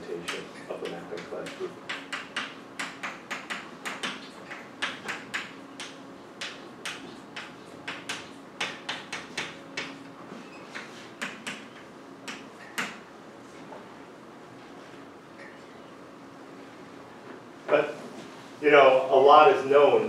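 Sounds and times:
chalk tapping and scratching on blackboard: 0.2 - 10.0, 10.7 - 13.0.

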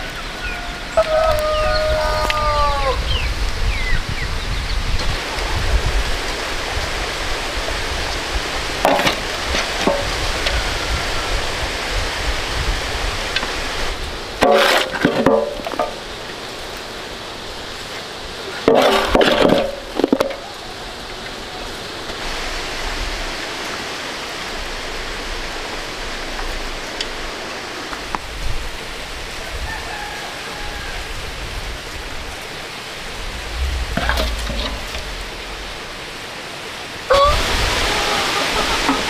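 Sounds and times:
steady background hiss: 0.0 - 39.0
shovel scraping metal basin: 14.4 - 16.0, 18.7 - 20.4, 33.4 - 35.7.

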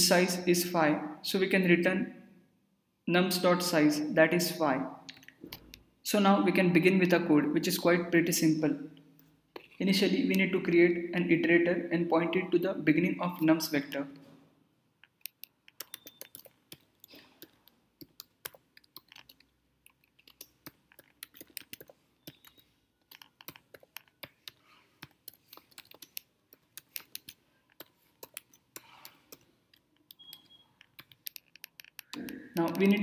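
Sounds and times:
faint keyboard typing: 15.0 - 33.0.

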